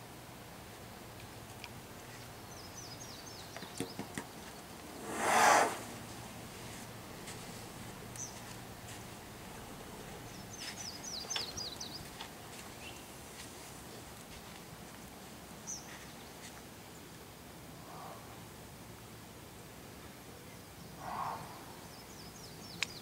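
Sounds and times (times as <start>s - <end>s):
small bird chirping: 8.0s - 8.6s, 10.0s - 13.1s.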